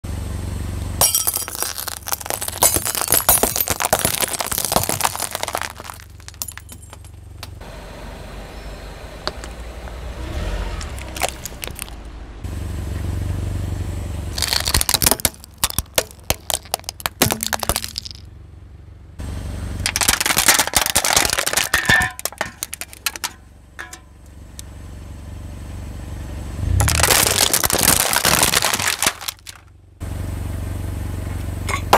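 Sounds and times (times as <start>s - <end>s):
glass bulbs crunching under tyre: 1.0s - 7.6s, 9.2s - 12.1s, 14.4s - 18.3s, 19.8s - 24.2s, 26.6s - 29.7s
plastic cracking under tyre: 1.4s - 6.6s, 10.8s - 12.0s, 14.4s - 18.2s, 19.9s - 23.3s, 26.8s - 29.7s
low rumble: 5.9s - 14.8s, 26.4s - 28.2s.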